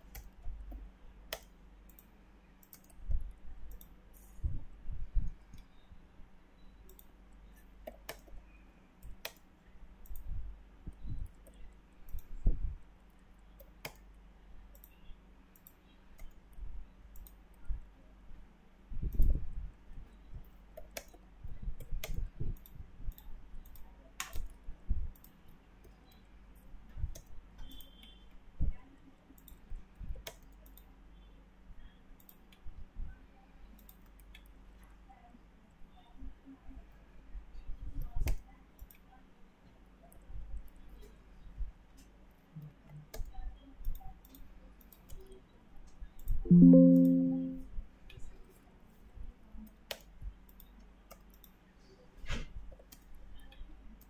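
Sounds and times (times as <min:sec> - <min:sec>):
computer mouse clicks: 0:00.0 - 0:04.4, 0:06.8 - 0:08.4, 0:09.0 - 0:12.6, 0:13.5 - 0:17.6, 0:19.1 - 0:19.4, 0:20.7 - 0:26.3, 0:27.0 - 0:28.2, 0:29.3 - 0:30.9, 0:32.2 - 0:32.6, 0:33.7 - 0:34.6, 0:38.0 - 0:39.1, 0:42.0 - 0:47.6, 0:49.6 - 0:51.6, 0:52.7 - 0:54.0
faint low hum: 0:00.0 - 0:54.0
keyboard keystrokes: 0:46.5 - 0:47.6.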